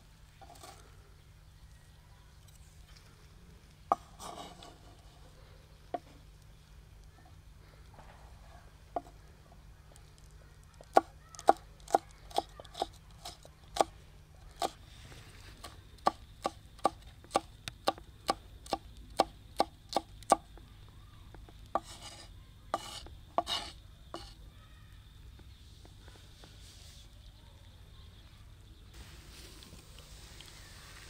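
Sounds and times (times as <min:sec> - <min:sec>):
short scraping: 0:03.9 - 0:05.2
knife chopping on cutting board: 0:22.8 - 0:24.3.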